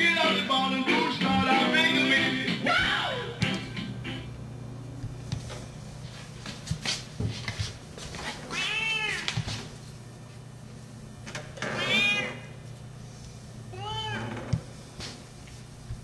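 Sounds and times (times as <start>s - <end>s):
cat meowing: 8.5s - 9.3s, 11.8s - 12.4s, 13.7s - 14.3s.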